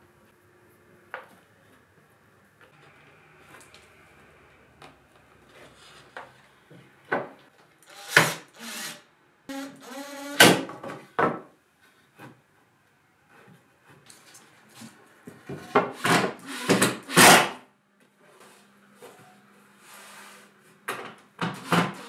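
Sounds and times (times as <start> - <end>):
cordless drill whirring: 7.9 - 10.4.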